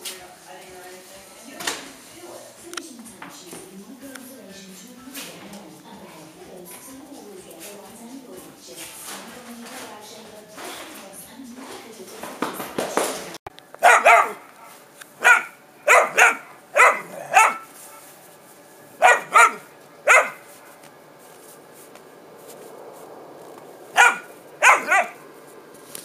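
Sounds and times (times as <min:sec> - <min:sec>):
puppy barking: 0:13.8 - 0:18.1, 0:19.0 - 0:20.8, 0:23.9 - 0:25.2.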